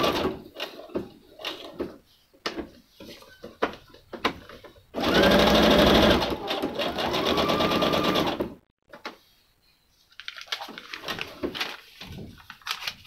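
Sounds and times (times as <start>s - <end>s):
sewing machine stitching: 0.0s - 1.8s, 5.0s - 8.6s
paper rustling and light clicks: 10.1s - 13.0s.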